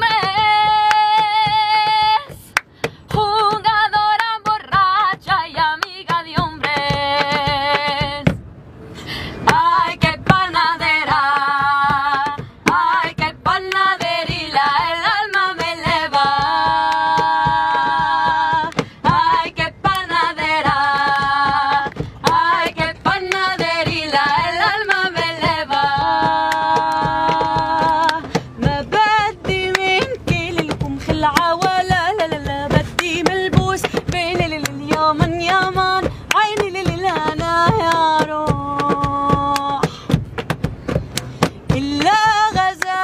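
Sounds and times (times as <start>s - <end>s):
woman singing: 0.0s - 2.5s, 3.1s - 8.4s, 9.4s - 40.2s, 41.7s - 43.0s
percussive hits: 9.5s - 42.9s.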